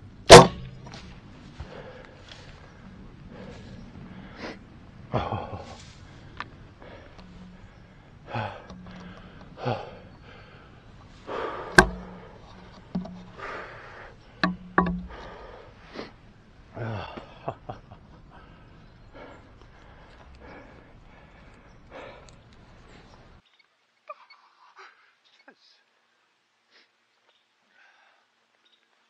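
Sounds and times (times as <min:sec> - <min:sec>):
man breathing hard: 0:01.6 - 0:04.8, 0:06.0 - 0:17.4, 0:18.3 - 0:23.2.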